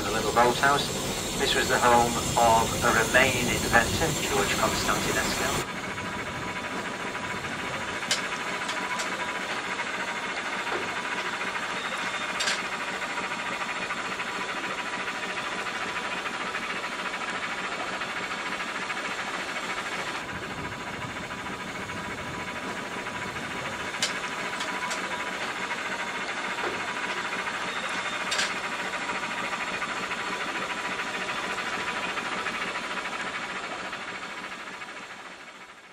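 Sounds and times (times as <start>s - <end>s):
steam boat hissing: 0.0s - 5.9s.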